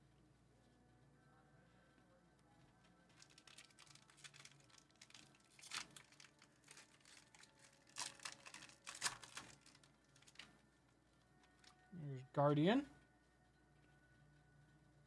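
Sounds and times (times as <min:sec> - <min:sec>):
foil wrapper crinkling: 0:03.0 - 0:10.5.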